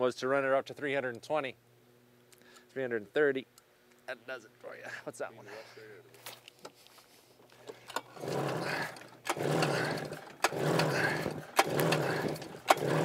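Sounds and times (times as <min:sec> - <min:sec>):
snowmobile engine cranking: 0:07.6 - 0:13.0.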